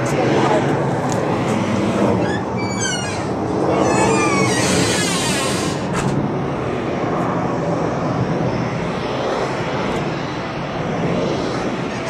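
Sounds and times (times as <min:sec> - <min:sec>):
distant jet engines: 0:00.0 - 0:12.0.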